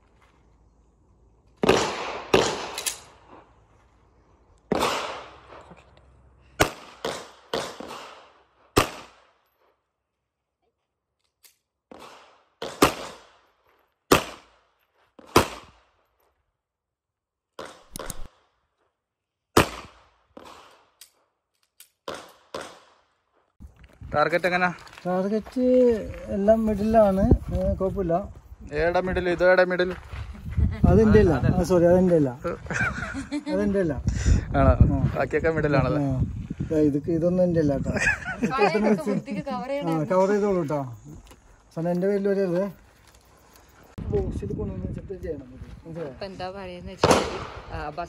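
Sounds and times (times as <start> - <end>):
handgun shots with echo: 1.6 - 3.1, 4.7 - 5.4, 6.6 - 9.2, 14.1 - 14.6, 22.0 - 23.0, 47.0 - 47.6.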